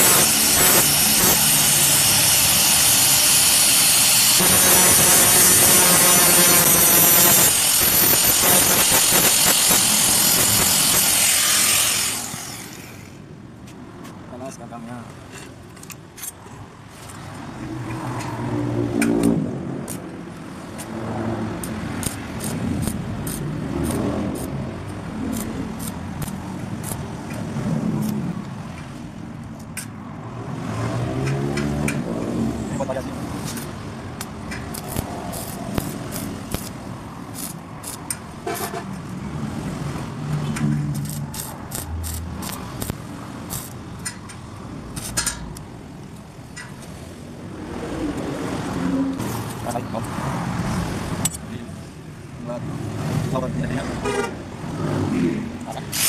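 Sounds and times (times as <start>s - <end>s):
arc welding crackles: 0.0s - 12.6s, 21.6s - 24.6s, 25.2s - 27.1s, 34.2s - 38.1s, 40.9s - 44.2s
road traffic rumble: 0.0s - 56.0s.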